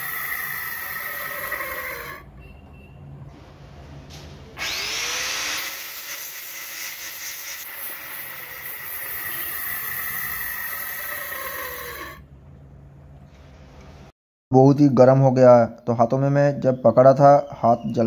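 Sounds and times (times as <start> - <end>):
angle grinder grinding steel: 0.0 - 2.3, 4.6 - 12.2.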